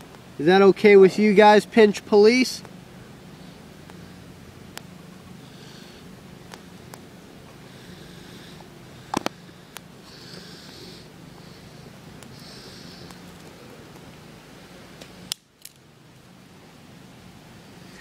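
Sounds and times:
person breathing through nose: 0:05.4 - 0:06.1, 0:07.6 - 0:13.2.

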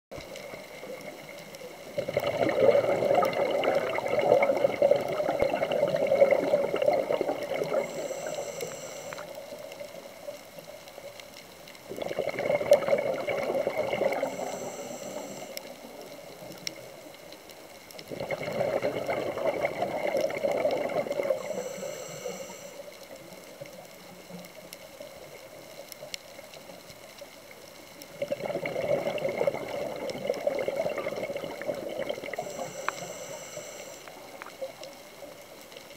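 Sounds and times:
air bubbling underwater: 0:02.0 - 0:08.0, 0:11.9 - 0:14.6, 0:18.1 - 0:21.5, 0:28.2 - 0:32.6.

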